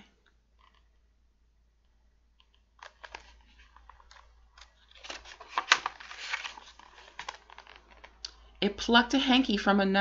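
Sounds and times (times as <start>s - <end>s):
book pages turning and rustling: 2.8s - 8.2s.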